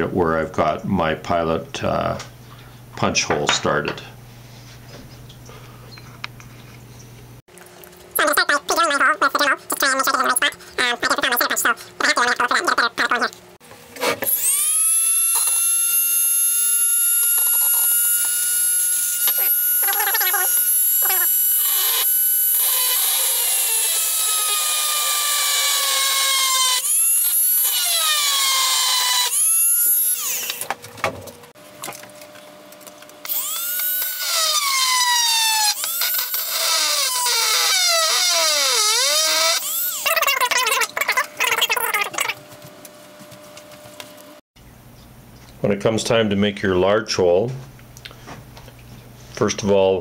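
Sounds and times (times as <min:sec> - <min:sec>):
rotary tool drilling metal: 0:14.2 - 0:30.6, 0:33.2 - 0:41.7.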